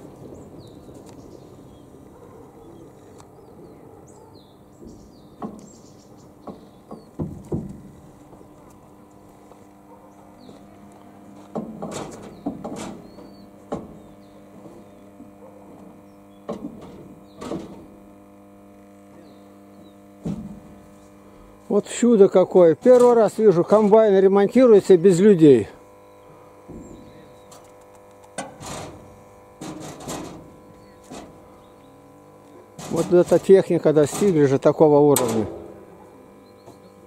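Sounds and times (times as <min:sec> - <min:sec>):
steady hum: 0:00.0 - 0:37.0
metallic knocks and clanks: 0:35.2 - 0:35.8.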